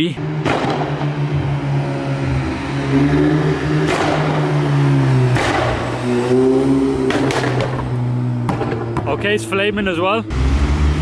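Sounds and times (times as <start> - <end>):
exhaust pops and bangs: 0.4 - 1.2, 3.8 - 4.6, 5.2 - 6.2, 7.0 - 9.4.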